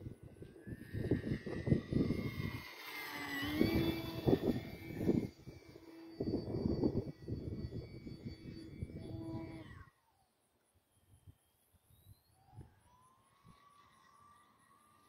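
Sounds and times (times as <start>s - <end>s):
wind rumble on microphone: 0.0s - 2.7s, 3.3s - 9.9s
model plane motor whining: 0.0s - 15.0s.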